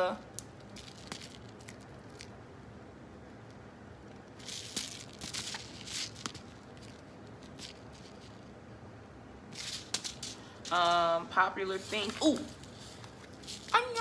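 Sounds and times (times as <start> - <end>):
paper packet rustling: 4.4 - 8.4, 9.6 - 14.0.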